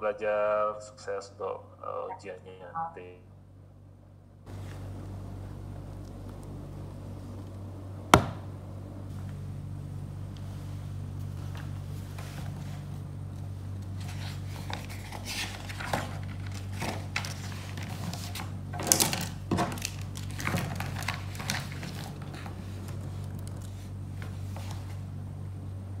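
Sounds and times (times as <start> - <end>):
steady low hum: 0.0 - 26.0
notebook pages rustling: 13.9 - 25.0.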